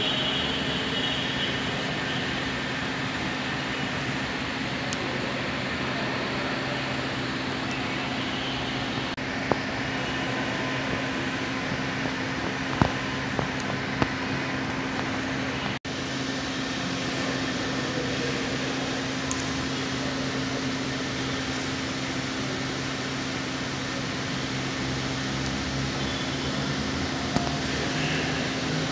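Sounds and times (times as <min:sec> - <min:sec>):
ventilation fan hum: 0:00.0 - 0:28.9.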